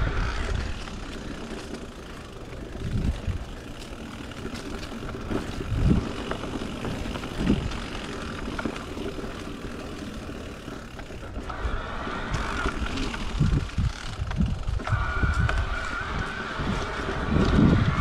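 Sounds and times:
bike clicks and rattles: 0.0 - 18.0
tyres rumbling on dirt: 0.0 - 18.0
wind buffeting microphone: 2.5 - 4.4, 5.0 - 8.0, 11.6 - 18.0.

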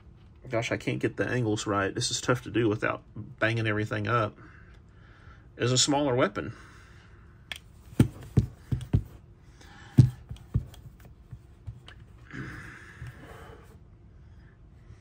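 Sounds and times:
revolvers knocking and clicking: 7.5 - 9.2.

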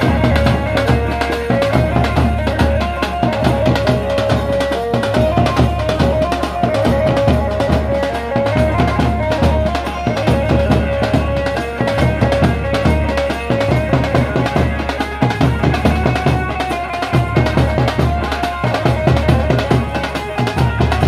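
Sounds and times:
fast snare drum beats: 0.0 - 21.0.

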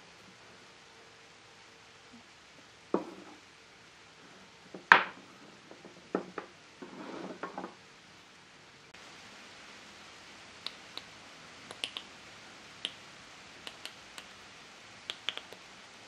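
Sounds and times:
wood knocking on workbench: 2.9 - 3.4, 4.7 - 6.5
wood scraping across bench: 3.0 - 3.4, 4.7 - 7.8.

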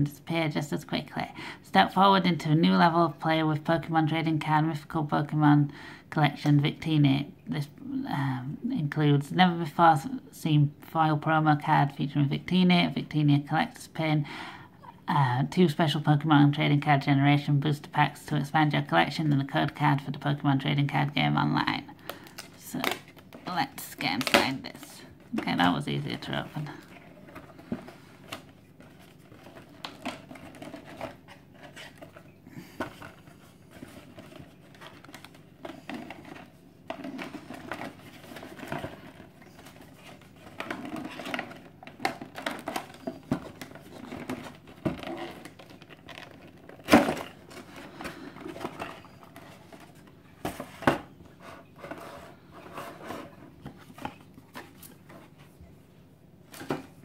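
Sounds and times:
plastic tray crinkling: 22.1 - 52.0
rustling and scraping of cardboard: 26.9 - 55.6.

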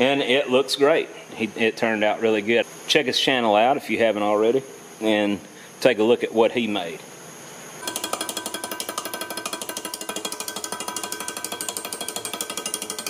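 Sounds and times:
metal tool rapping rattle: 7.8 - 13.0.

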